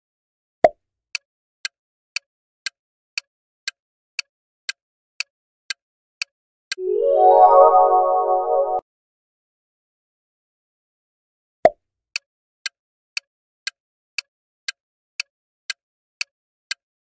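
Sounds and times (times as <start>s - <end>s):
ringing multi-tone chime: 6.8s - 8.8s.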